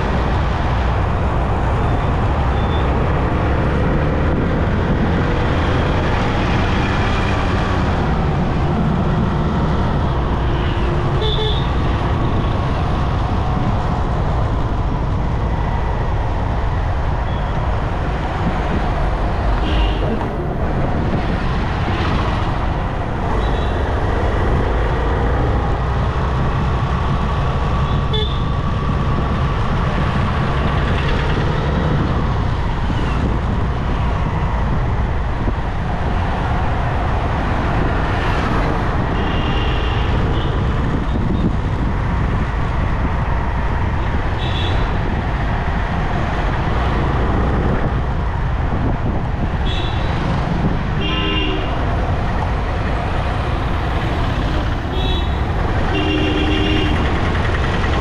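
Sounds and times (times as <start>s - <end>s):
traffic engine and road noise: 0.0s - 58.0s
vehicle horn toots: 28.1s - 28.4s, 51.0s - 51.8s, 54.9s - 57.1s.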